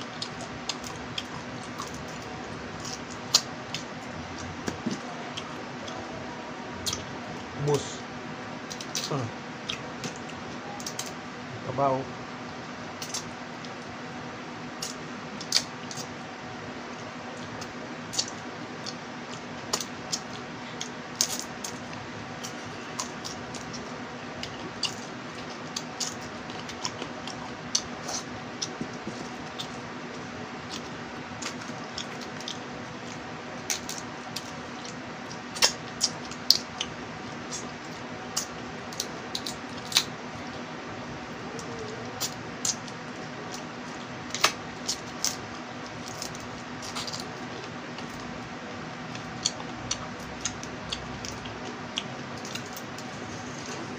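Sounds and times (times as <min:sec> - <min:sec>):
steady low hum: 0:00.0 - 0:53.9
crab shells cracking and crunching: 0:30.6 - 0:40.6, 0:41.6 - 0:48.3, 0:49.0 - 0:53.1.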